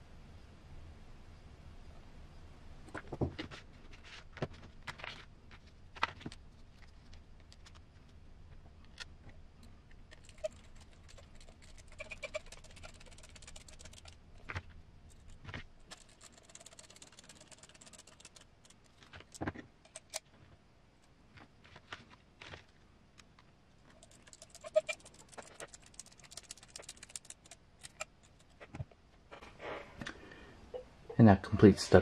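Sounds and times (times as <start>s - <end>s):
plastic parts clicking and tapping: 10.0s - 20.3s, 23.2s - 28.8s.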